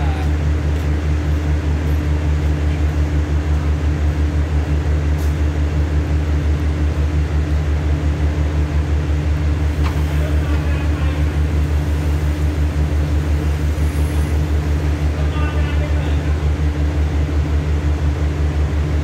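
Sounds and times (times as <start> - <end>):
diesel train engine idling: 0.0 - 19.0.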